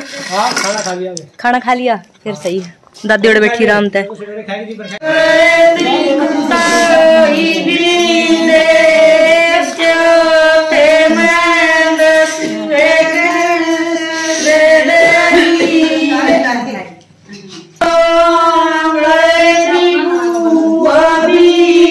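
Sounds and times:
woman singing: 5.0s - 16.9s, 17.8s - 21.9s.

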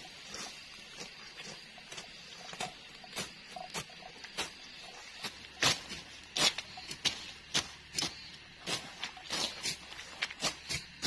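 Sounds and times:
blade swishing through dry grass: 5.2s - 11.0s.

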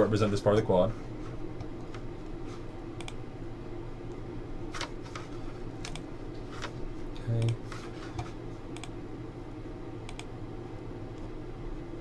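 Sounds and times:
low room hum: 0.0s - 12.0s
keyboard and mouse clicks: 3.0s - 3.2s, 5.8s - 6.1s.

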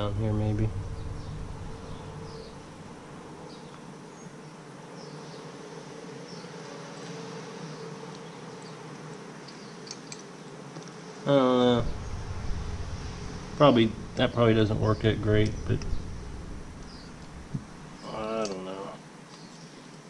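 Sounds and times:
low background hum: 0.0s - 4.4s, 11.4s - 19.0s
small metal parts clicking: 9.5s - 10.9s.

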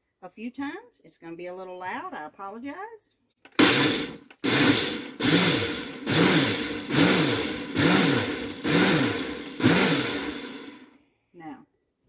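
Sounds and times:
blender pulsing whir: 3.5s - 10.9s.

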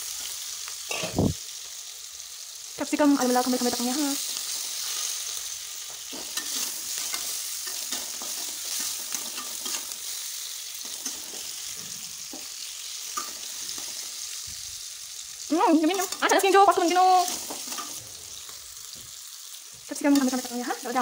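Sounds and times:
vegetables sizzling in oil: 0.0s - 21.0s
spatula scraping pan: 6.0s - 10.2s, 17.2s - 18.6s.

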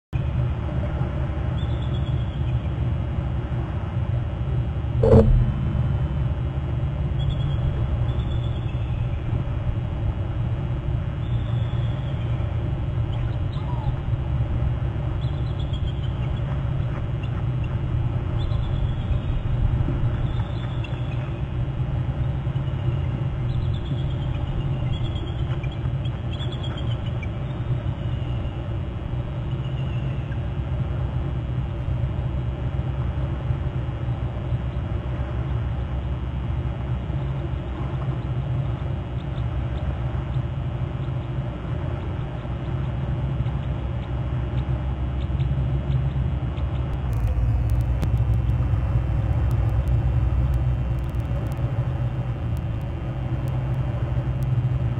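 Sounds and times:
microphone wind rumble: 2.9s - 11.3s, 46.9s - 54.9s.

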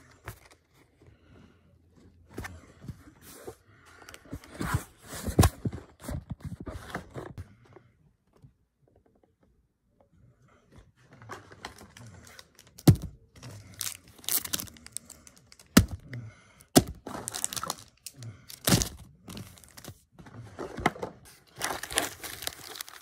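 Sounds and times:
cards and wrappers rustling: 11.0s - 23.0s.

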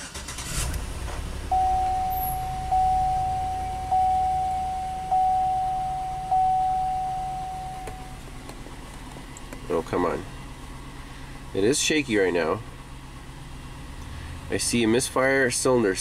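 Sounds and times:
engine starting and idling roughly: 0.0s - 4.1s
dashboard warning chime: 1.5s - 8.6s.

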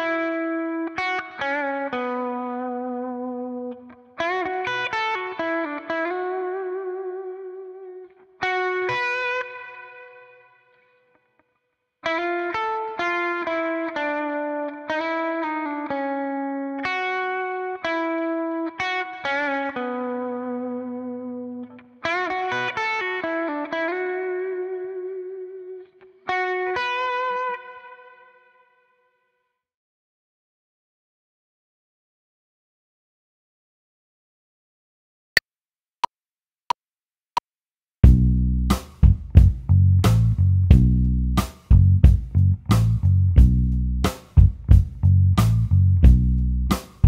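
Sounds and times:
electric guitar blues lick: 0.0s - 11.0s, 12.0s - 28.6s.

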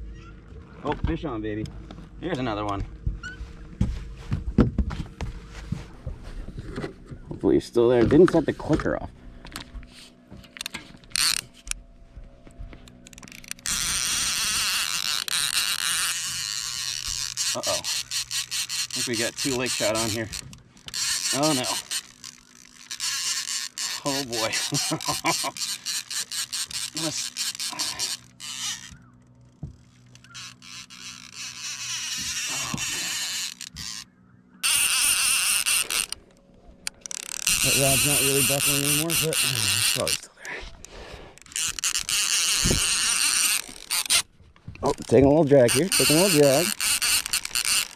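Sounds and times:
rod and reel handling clicks: 8.1s - 11.8s, 12.7s - 47.9s
fishing reel whirring: 9.4s - 11.9s, 12.8s - 47.9s.

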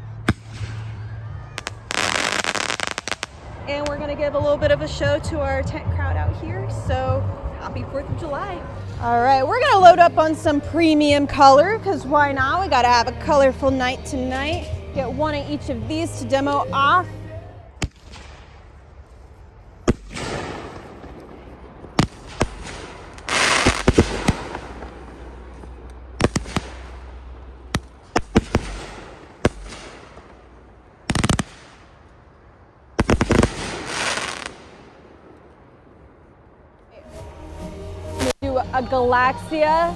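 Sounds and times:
fireworks bangs: 0.2s - 4.0s, 19.8s - 32.1s, 33.0s - 36.2s
fireworks crackling hiss: 1.6s - 3.5s, 17.9s - 32.0s, 33.0s - 35.4s, 37.1s - 38.4s.

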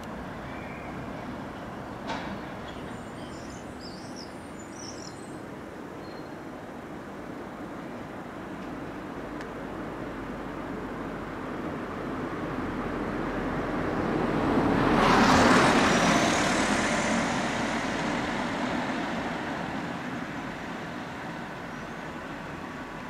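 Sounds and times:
street traffic: 0.0s - 23.0s
vehicle passing close by: 12.5s - 21.6s.

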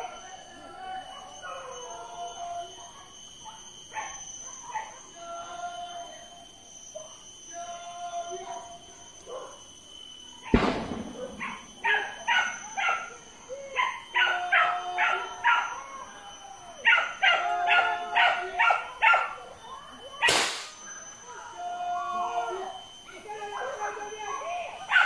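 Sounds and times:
sharp bang: 10.6s - 12.1s, 20.3s - 20.8s
dogs barking: 11.2s - 13.2s, 13.8s - 15.8s, 16.8s - 19.5s.

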